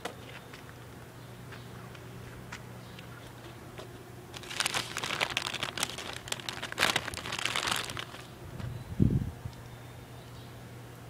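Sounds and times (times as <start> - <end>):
plastic bag crinkling and rustling: 4.3 - 8.4.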